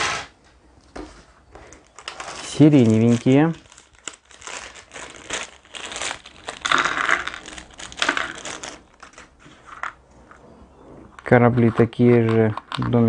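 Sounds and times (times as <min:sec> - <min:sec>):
plastic bag crinkling: 0:01.6 - 0:10.0.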